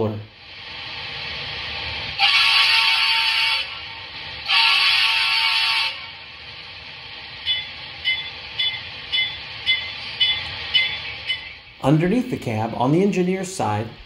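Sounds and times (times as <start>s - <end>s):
locomotive horn blast: 2.2s - 6.2s
locomotive bell ringing: 7.4s - 11.7s.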